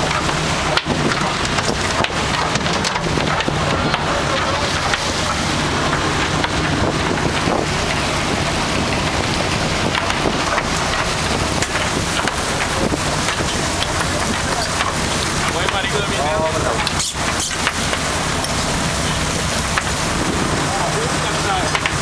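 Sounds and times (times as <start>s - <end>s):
boat engine running: 0.0s - 22.0s
rush of water from wake: 0.0s - 22.0s
wind buffeting microphone: 0.0s - 22.0s.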